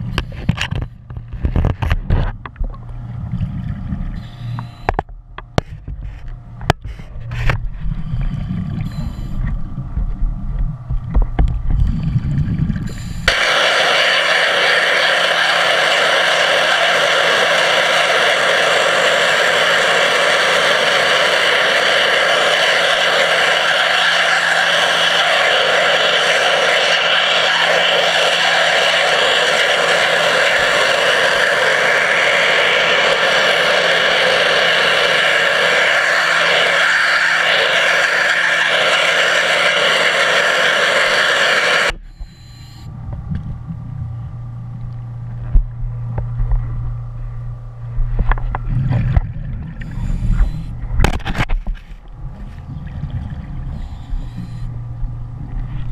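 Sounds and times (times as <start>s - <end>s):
low rumble: 0.0s - 55.9s
underwater pressure washer jet hissing: 11.9s - 42.8s, 48.2s - 50.7s, 52.3s - 54.6s.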